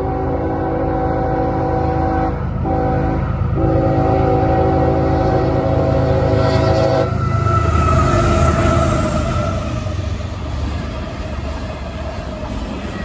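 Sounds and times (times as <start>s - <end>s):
locomotive air horn blasts: 0.0s - 9.2s
train rumble: 0.0s - 13.0s.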